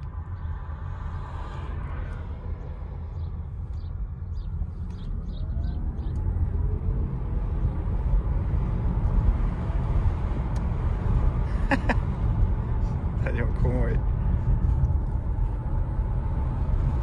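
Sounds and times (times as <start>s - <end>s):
faint rising hum: 0.0s - 17.0s
road and tyre rumble: 0.0s - 17.0s.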